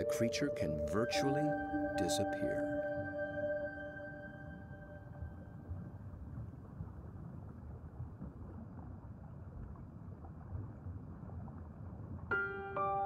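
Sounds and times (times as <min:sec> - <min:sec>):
underwater rumbling wash: 0:05.0 - 0:12.3.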